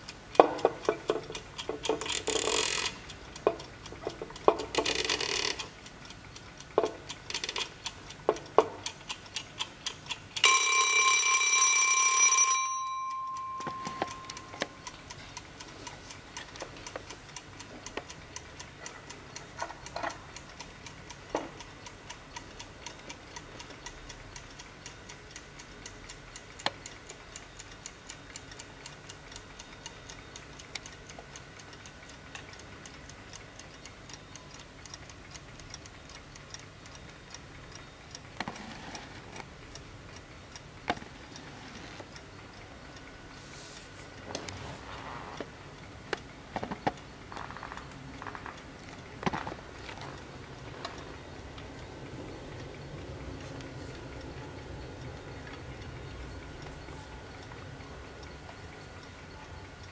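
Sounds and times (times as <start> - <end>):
clock ticking: 0.0 - 59.9
timer knob scraping and clicking: 0.5 - 5.8, 6.7 - 10.5, 37.7 - 39.5, 40.8 - 43.2
timer bell ringing: 10.4 - 14.8.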